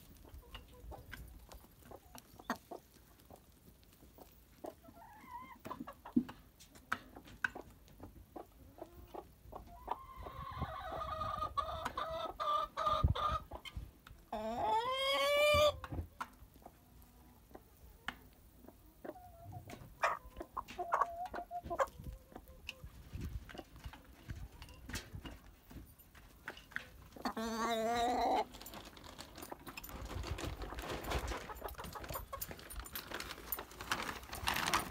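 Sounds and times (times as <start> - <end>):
chickens pecking clicks: 0.2 - 9.2
chicken drawn-out call: 9.7 - 13.6, 14.3 - 15.9.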